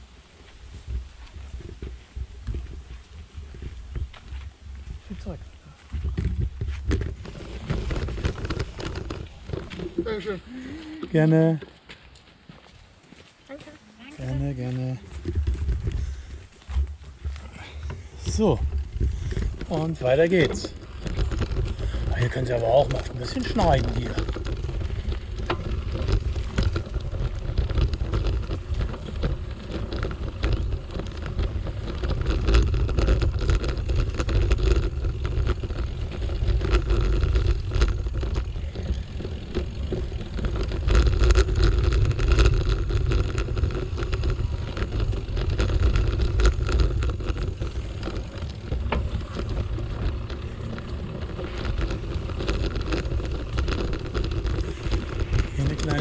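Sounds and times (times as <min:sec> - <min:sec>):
bicycle rolling on dirt path: 0:00.0 - 0:56.0.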